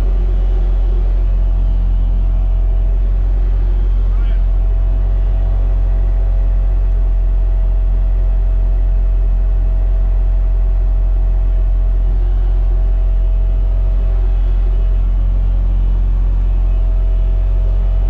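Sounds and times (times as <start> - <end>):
diesel engine low drone: 0.0 - 18.0
faint steady whine: 0.0 - 18.0.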